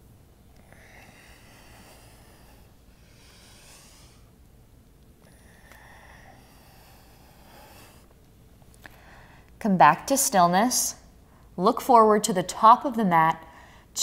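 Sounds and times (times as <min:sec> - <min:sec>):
woman breathing through the nose: 0:00.6 - 0:04.4, 0:05.2 - 0:08.1, 0:08.8 - 0:09.5, 0:13.4 - 0:13.9.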